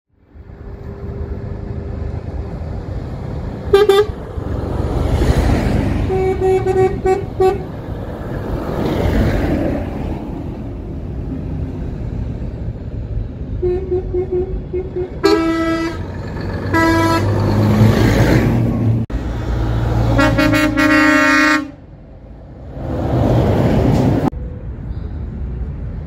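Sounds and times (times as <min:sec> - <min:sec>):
trucks passing: 0:00.1 - 0:26.0
truck horn blasts: 0:03.7 - 0:04.2, 0:06.0 - 0:07.8, 0:13.6 - 0:16.1, 0:16.7 - 0:17.5, 0:20.0 - 0:21.9.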